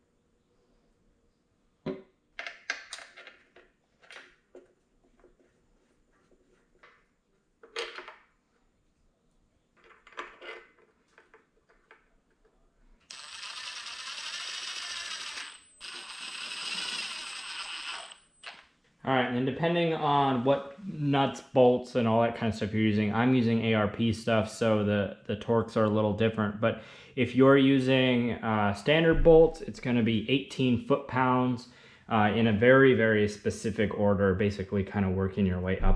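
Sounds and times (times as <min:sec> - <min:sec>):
cordless power driver whining: 0:13.1 - 0:18.6.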